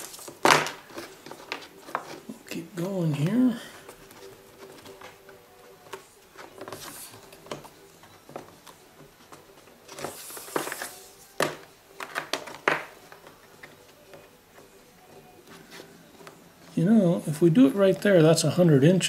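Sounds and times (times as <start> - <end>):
cloth tape rustling: 0.0 - 18.5.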